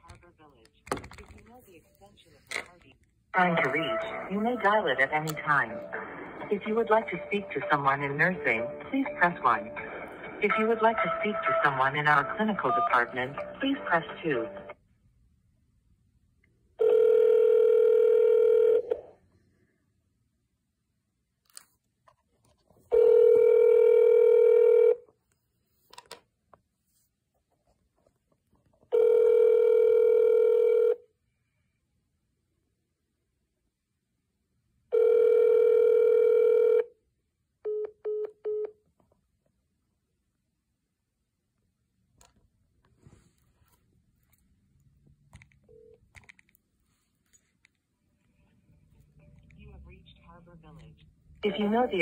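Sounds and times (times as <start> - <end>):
telephone ringback tone: 16.8 - 19.1, 22.9 - 25.0, 28.9 - 31.0, 34.9 - 37.0.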